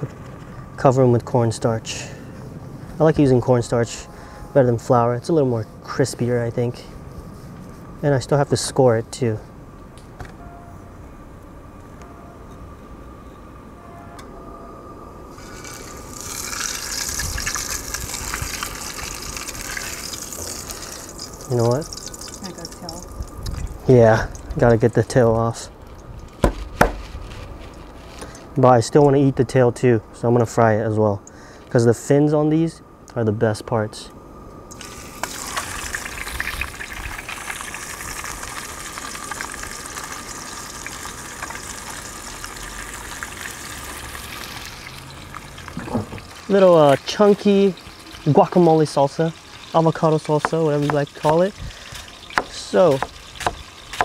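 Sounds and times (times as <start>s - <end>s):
hot oil sizzling in a pan: 15.3s - 24.5s, 34.7s - 54.0s.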